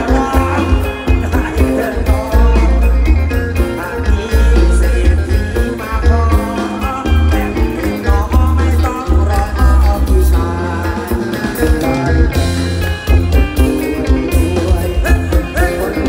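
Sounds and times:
heavy pulsing bass: 0.0s - 16.0s
live band playing: 0.0s - 16.0s
person singing lead vocal: 0.0s - 16.0s.

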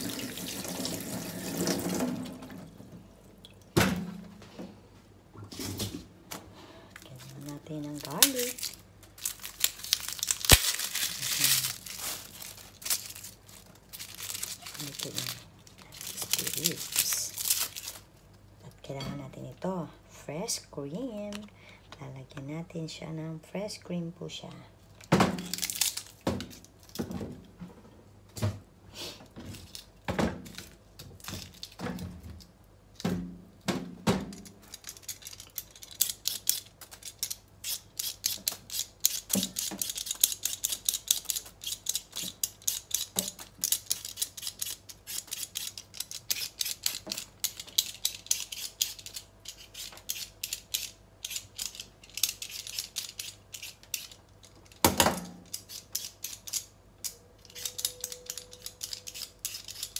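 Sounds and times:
peeler scraping potato skin: 34.7s - 54.8s, 55.4s - 59.9s.

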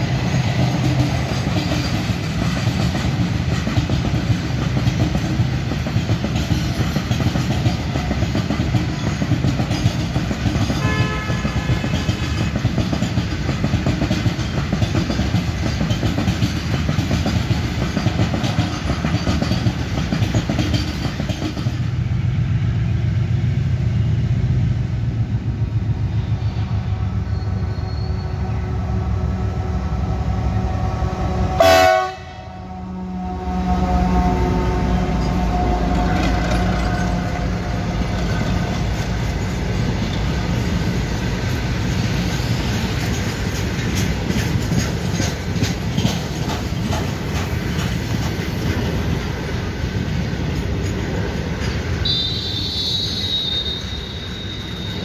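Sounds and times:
wheel clatter over rail joints: 0.0s - 21.9s, 35.2s - 52.0s
diesel locomotive engine drone: 0.0s - 55.0s
freight train rumbling: 0.0s - 55.0s
train horn blast: 10.7s - 12.6s, 27.7s - 38.2s, 52.0s - 55.0s.

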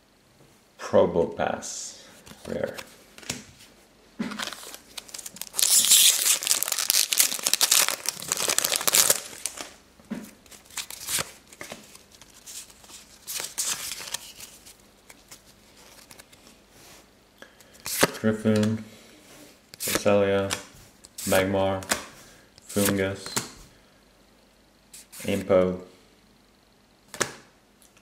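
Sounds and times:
wrapper and cards rustling: 4.3s - 16.6s
foil wrapper tearing and crinkling: 4.4s - 9.7s.

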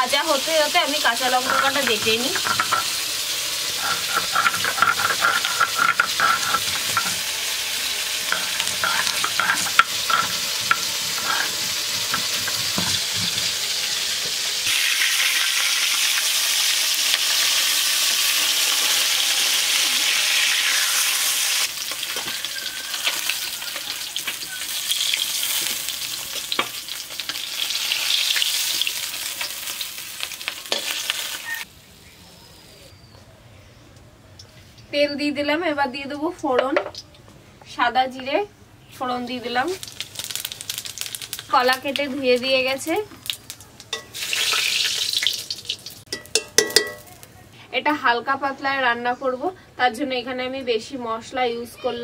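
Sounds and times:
fish sizzling in oil: 0.0s - 31.7s, 39.1s - 47.3s
metal spatula scraping wok: 1.0s - 14.5s
stone grinder rubbing and knocking: 1.3s - 3.0s, 3.7s - 7.3s, 8.3s - 13.6s.

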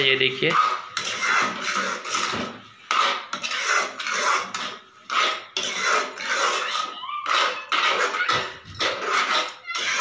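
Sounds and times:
metal spoon scraping pan: 0.0s - 10.0s.

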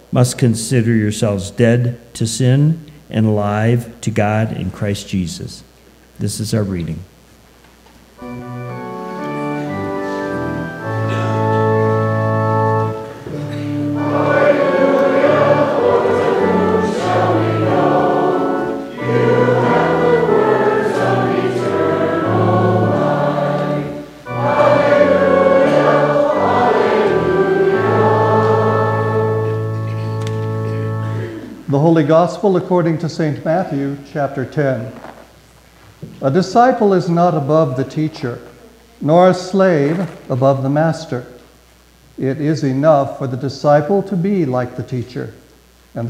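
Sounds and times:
organ playing chords: 8.1s - 34.1s
congregation singing: 8.2s - 32.8s.

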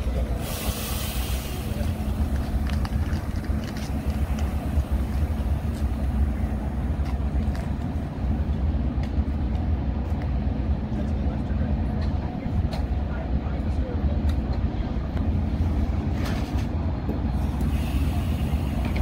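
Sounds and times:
diesel locomotive idling: 0.0s - 19.0s
hiss burst: 0.4s - 2.4s, 17.4s - 19.0s.

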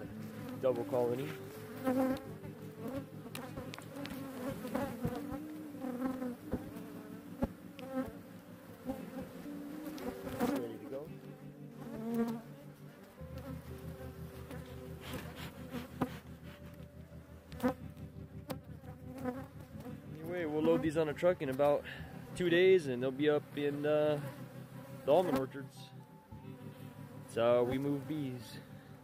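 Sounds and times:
bees flying close past: 0.0s - 11.0s, 11.7s - 16.8s, 17.5s - 21.1s, 23.4s - 25.5s
honey bees buzzing: 0.0s - 29.0s.

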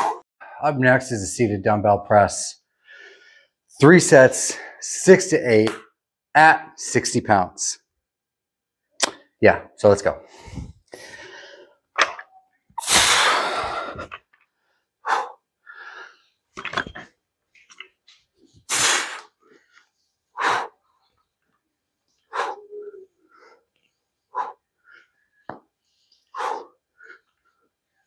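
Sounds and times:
man exhaling forcefully: 12.8s - 14.0s.

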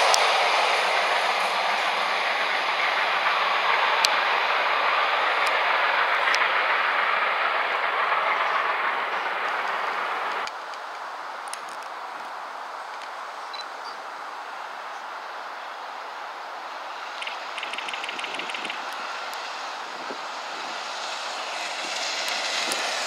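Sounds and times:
train wheels rushing on rail: 0.0s - 23.0s
sharp clicks: 17.2s - 19.4s.

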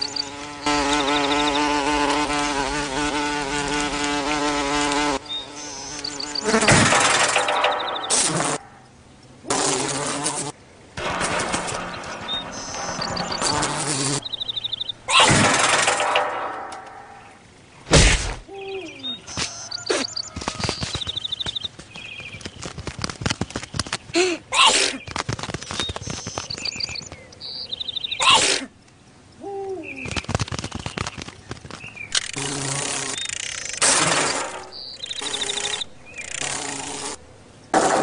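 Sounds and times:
squeaky chirping calls: 12.3s - 15.3s, 32.1s - 37.2s
sharp thump: 17.9s - 18.4s.

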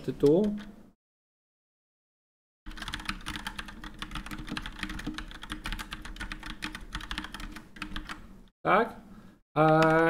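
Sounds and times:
fast typing on keyboard: 2.7s - 8.2s, 9.6s - 10.0s.

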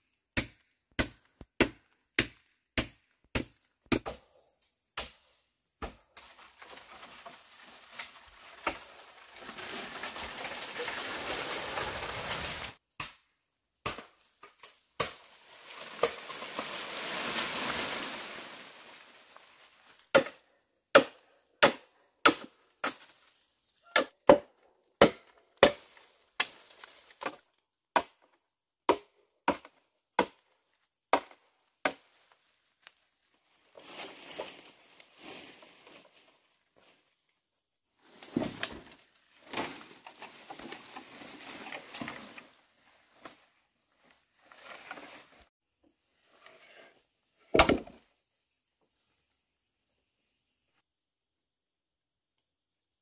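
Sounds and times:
blade chopping bamboo: 0.4s - 4.2s, 20.1s - 23.0s, 23.9s - 26.6s, 28.9s - 30.4s
bamboo stems crashing and rustling: 6.2s - 13.2s, 13.8s - 20.4s, 21.0s - 24.4s, 25.0s - 28.2s, 33.6s - 37.0s, 38.0s - 45.5s, 47.5s - 48.1s.

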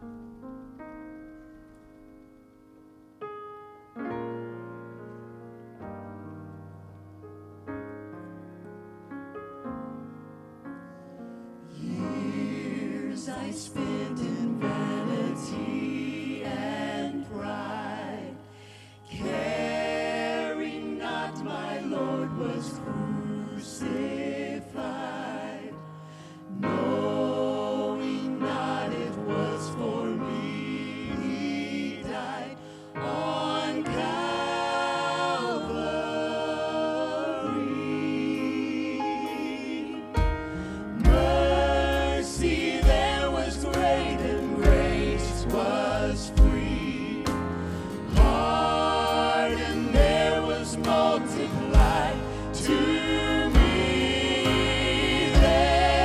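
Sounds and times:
piano accompaniment: 0.0s - 18.5s, 19.1s - 56.0s
group singing worship song: 11.6s - 56.0s.

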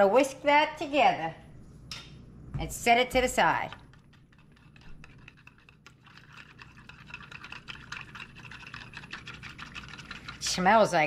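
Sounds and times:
whisk clicking against bowl: 3.2s - 11.0s
liquid swishing: 3.7s - 11.0s.

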